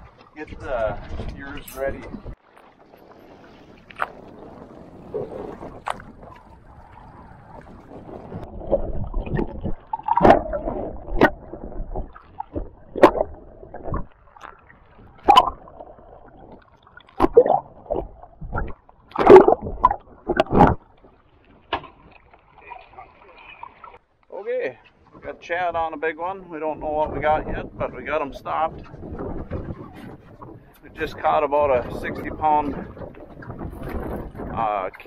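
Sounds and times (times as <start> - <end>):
muffled underwater sloshing: 0.0 - 25.5, 26.8 - 35.0
sharp knocks and splashes: 3.6 - 24.0.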